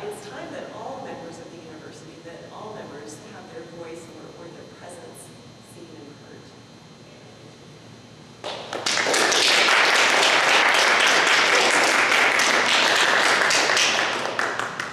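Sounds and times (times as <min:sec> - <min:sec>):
audience applauding: 0:08.4 - 0:14.9.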